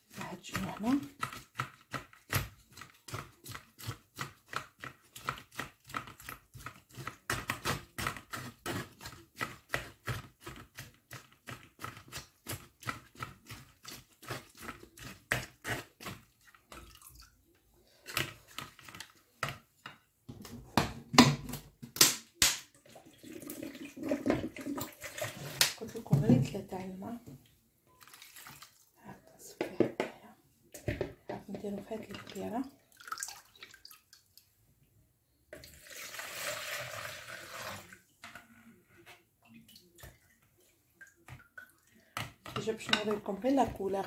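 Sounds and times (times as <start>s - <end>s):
wet squelching: 28.0s - 29.0s.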